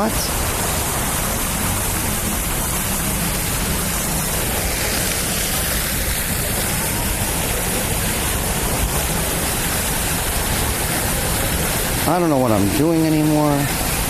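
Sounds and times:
fountain water rushing: 0:00.0 - 0:14.0.

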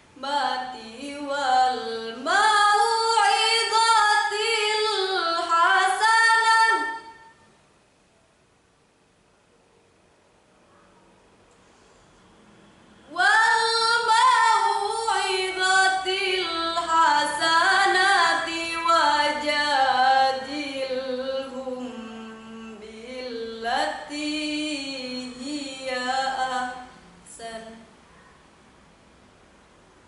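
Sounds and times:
girl reciting melodically: 0:00.2 - 0:07.2, 0:13.1 - 0:27.9.

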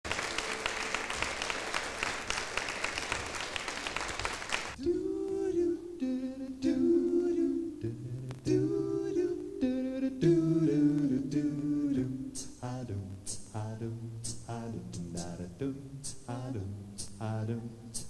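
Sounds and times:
audience applause: 0:00.0 - 0:04.8
male vocal group humming chords: 0:04.8 - 0:18.0.

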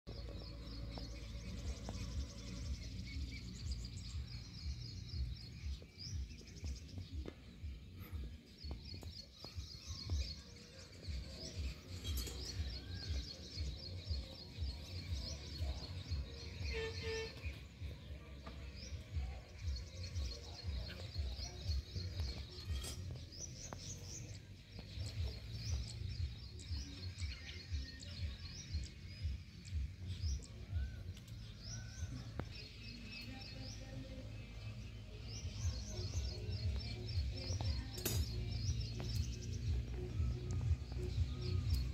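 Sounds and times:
small birds chirping: 0:00.0 - 0:41.9.

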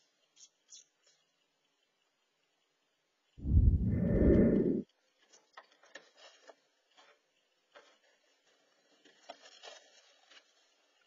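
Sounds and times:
loud low rumbling burst: 0:03.4 - 0:04.8
dry grass scratching and rustling: 0:05.3 - 0:11.0.

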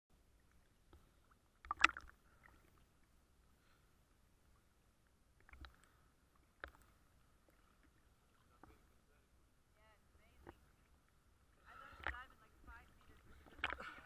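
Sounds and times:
water sloshing against camera housing: 0:11.8 - 0:14.0.

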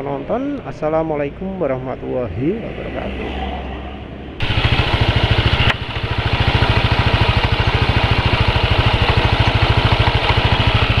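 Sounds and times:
motorcycle engine idling: 0:04.4 - 0:11.0.

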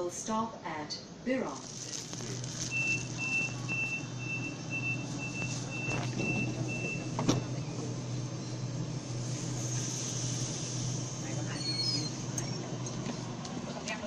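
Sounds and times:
electric train humming: 0:01.3 - 0:14.0
high electronic beeps: 0:02.6 - 0:07.1
sharp squeak: 0:11.5 - 0:12.2.

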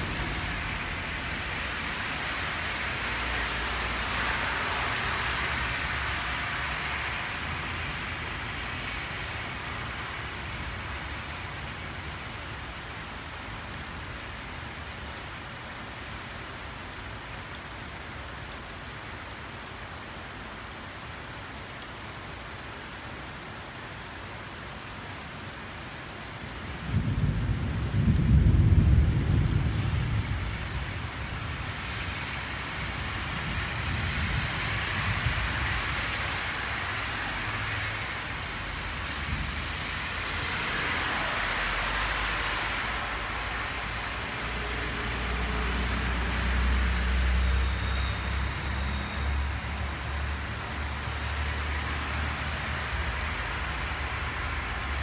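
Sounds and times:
steady rain: 0:00.0 - 0:55.0
deep rumble of thunder: 0:26.8 - 0:31.5.

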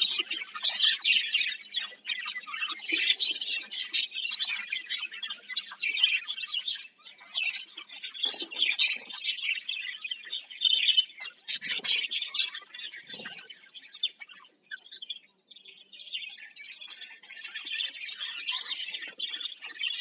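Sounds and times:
budgerigars chirping and chattering: 0:00.0 - 0:20.0.

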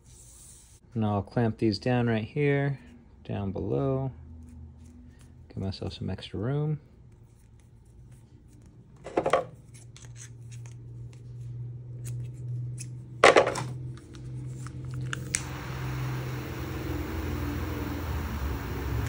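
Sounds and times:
torch lighter click: 0:15.1 - 0:19.0
butane torch hissing: 0:15.2 - 0:19.0.

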